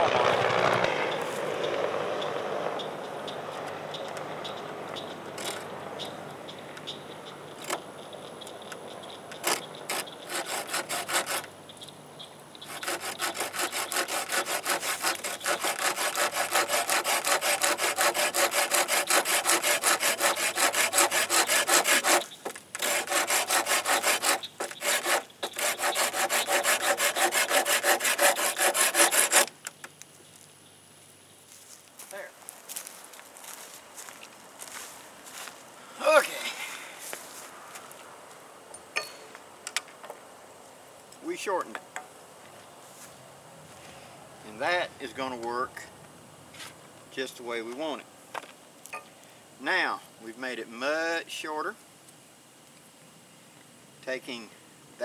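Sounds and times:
hand saw cutting wood: 9.4 - 11.5, 12.6 - 29.6.

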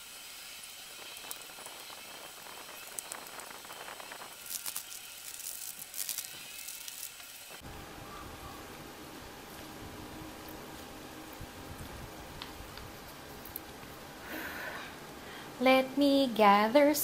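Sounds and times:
background hiss: 0.0 - 17.0
noodles squelching when stirred: 1.0 - 7.6.

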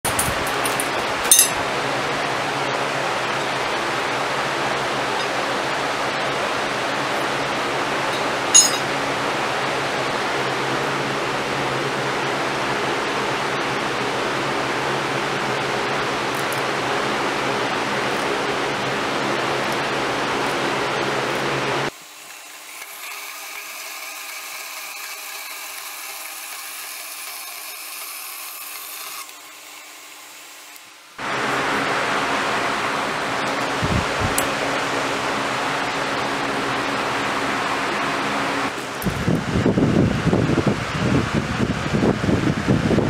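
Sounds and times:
steel clinking on anvil: 0.1 - 1.6, 8.1 - 8.9
steady rushing noise: 31.2 - 43.0.

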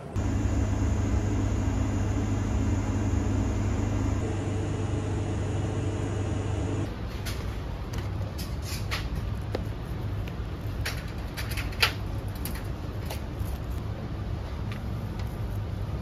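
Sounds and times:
machine hum with low drone: 0.0 - 7.0.

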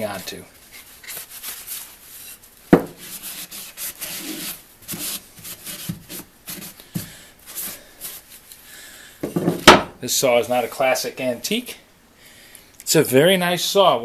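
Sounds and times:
cloth rag rubbing on wood: 0.0 - 8.4.

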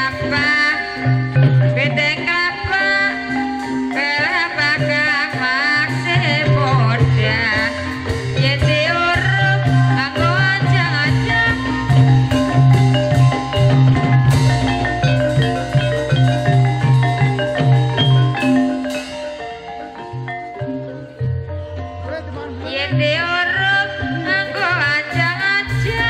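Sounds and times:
high wavering melody line: 0.0 - 26.0
metal mallet instruments and gongs: 0.0 - 26.0.

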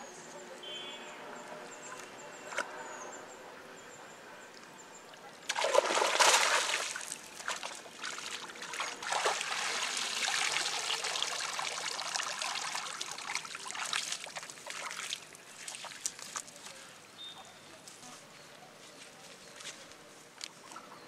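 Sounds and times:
water streaming and dripping: 5.2 - 16.8
water splashing: 5.4 - 16.7.

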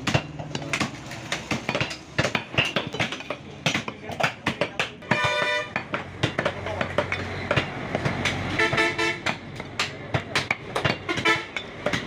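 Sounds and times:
horn tooting: 5.1 - 5.8, 8.5 - 9.3, 11.1 - 11.6.

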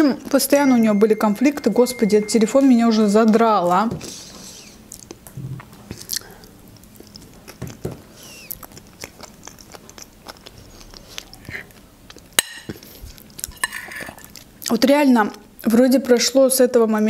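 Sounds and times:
person chewing soft food: 4.6 - 14.8.

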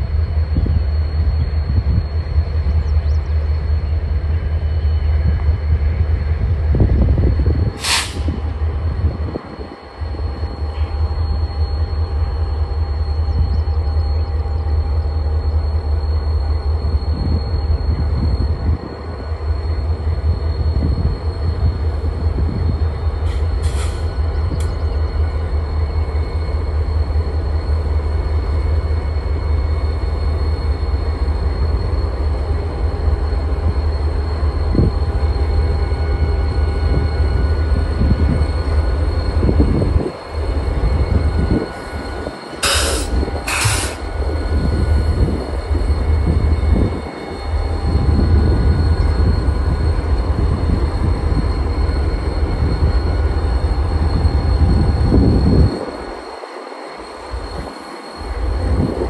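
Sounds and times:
diesel locomotives rumbling: 0.0 - 59.0
short sharp hisses: 7.8 - 8.3, 23.3 - 24.1, 42.6 - 44.1.

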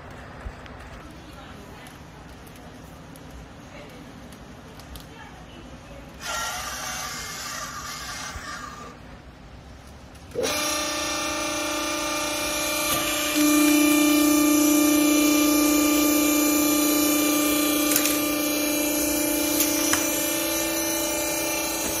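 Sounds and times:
faint clicks: 1.8 - 5.2
hydraulic power unit humming: 6.1 - 9.2, 10.1 - 22.0.

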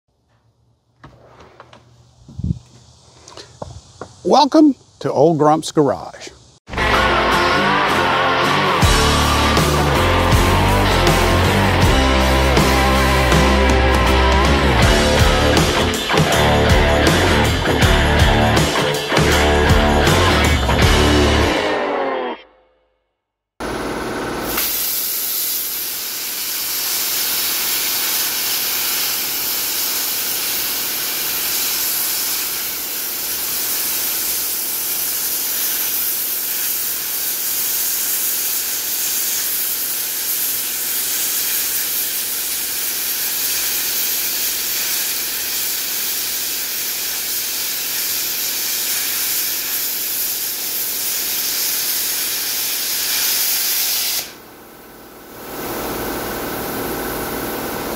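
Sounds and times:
plasma cutter hissing: 24.4 - 54.4.

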